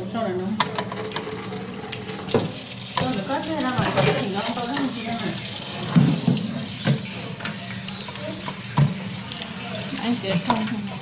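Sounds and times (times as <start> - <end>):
water running and splashing: 0.2 - 11.0.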